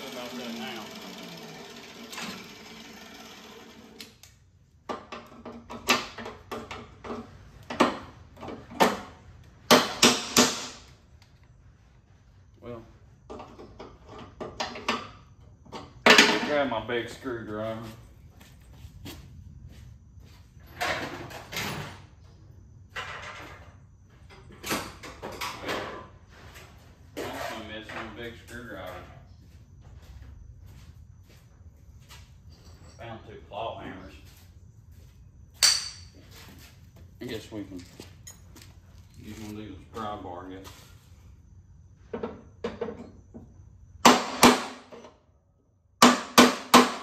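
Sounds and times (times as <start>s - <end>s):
steady whir: 0.0s - 4.3s
sharp metal knocks: 9.7s - 10.8s, 35.6s - 36.1s, 44.0s - 44.8s, 46.0s - 47.0s.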